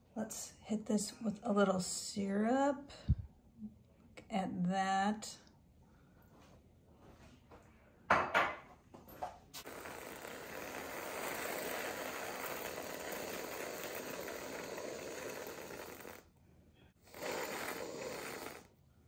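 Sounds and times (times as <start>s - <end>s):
aerosol whipped cream spraying: 9.6s - 16.2s, 17.1s - 18.7s.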